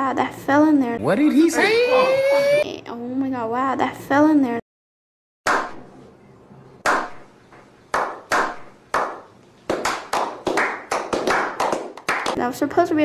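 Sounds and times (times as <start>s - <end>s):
hands clapping with echo: 6.8s - 7.2s, 7.9s - 12.4s.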